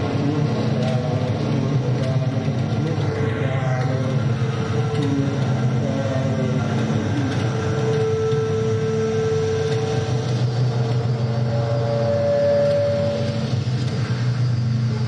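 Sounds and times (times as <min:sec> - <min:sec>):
low rumble: 0:00.0 - 0:15.0
long held electronic tones: 0:07.6 - 0:15.0.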